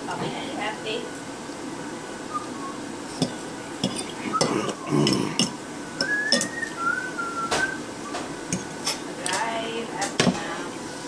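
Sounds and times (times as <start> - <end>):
thin wavering whistle-like tone: 2.3 - 2.8, 6.0 - 8.2
metal fork scraping plate: 3.2 - 4.2.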